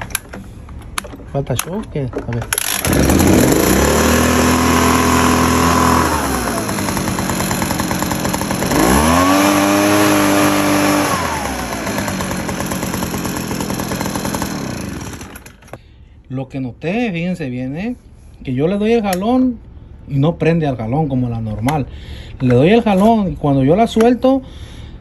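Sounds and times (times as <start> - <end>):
leaf blower engine revving: 2.5 - 15.7.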